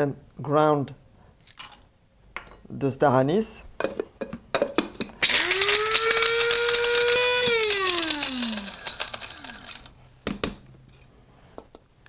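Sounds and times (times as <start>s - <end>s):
spice pieces rattling: 5.2s - 9.9s
spice grinder motor whining: 5.2s - 10.0s.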